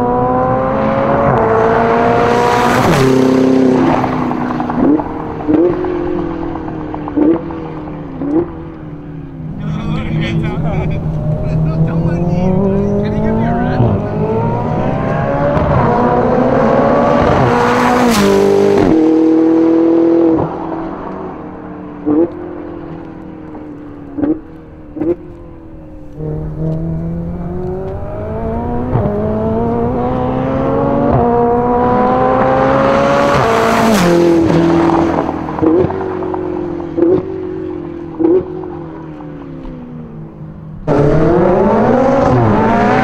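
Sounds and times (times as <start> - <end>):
car engine accelerating past: 0.0 - 43.0.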